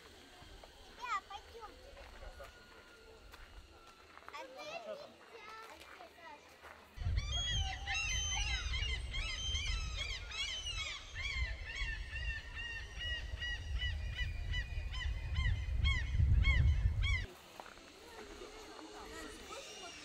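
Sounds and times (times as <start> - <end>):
many birds calling: 7.0 - 17.4.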